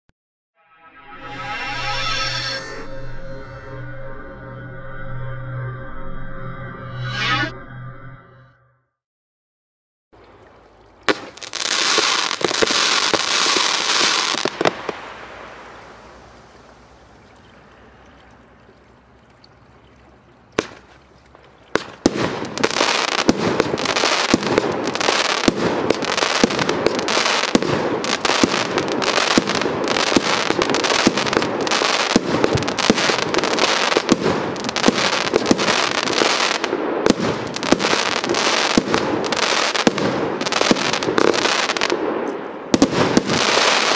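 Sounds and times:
firework shots bursting: 11.1 - 16.5, 20.6 - 21.0, 21.7 - 43.9
firework hiss: 11.1 - 17.0
firework crackling: 11.1 - 17.1, 20.5 - 43.9.

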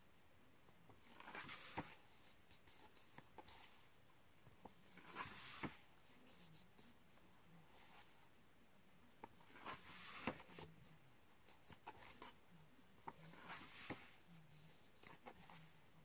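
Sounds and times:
paper pages turning: 1.0 - 3.8, 4.9 - 5.9, 9.2 - 10.7, 13.0 - 14.2.

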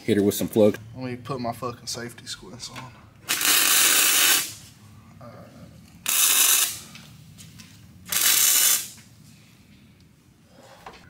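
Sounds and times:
welder arc hiss: 3.3 - 4.6, 6.1 - 6.8, 8.1 - 9.0.

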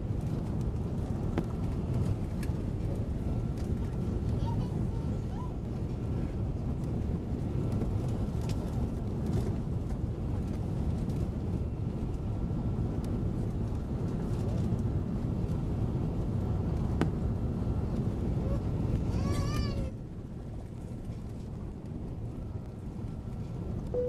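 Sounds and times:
aircraft cabin engine rumble: 0.0 - 24.0
faint steady whine: 20.8 - 24.0.

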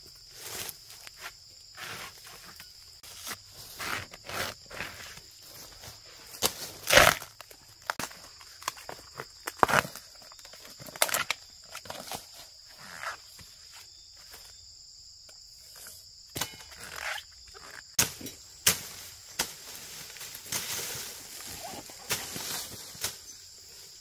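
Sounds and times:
high insect drone: 0.0 - 24.0
dry leaves crackling and snapping: 17.1 - 23.3.

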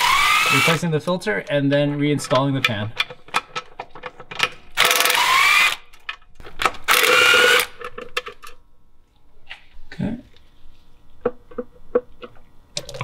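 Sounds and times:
power tool whining: 0.0 - 0.8, 4.8 - 5.8.

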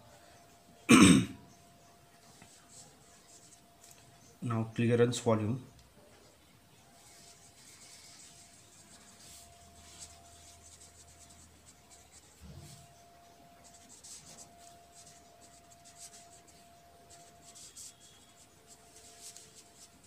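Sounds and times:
pen scratching on paper: 7.0 - 20.0.

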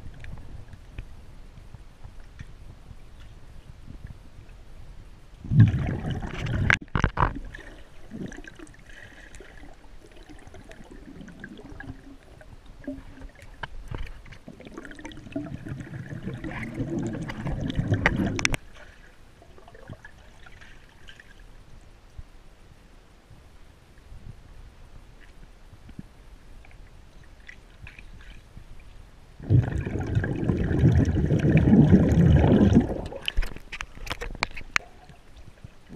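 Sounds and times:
rushing water: 5.4 - 21.5, 27.1 - 35.9
muffled water sloshing: 5.4 - 21.7, 25.2 - 35.9.

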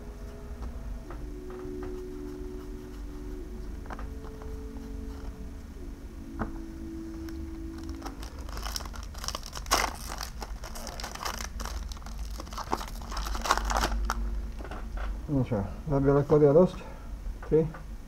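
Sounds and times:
foil wrapper crinkling and tearing: 7.2 - 14.2.

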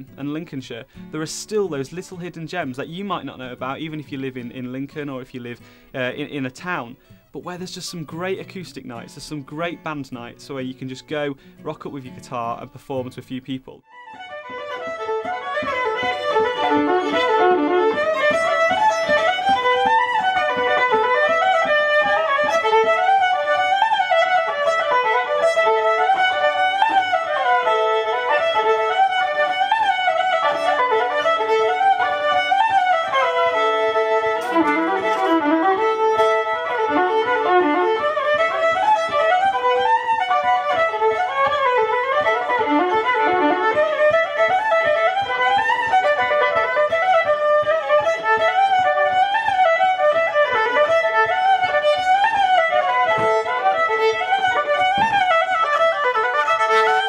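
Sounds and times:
electric violin playing fast notes: 14.0 - 57.0.

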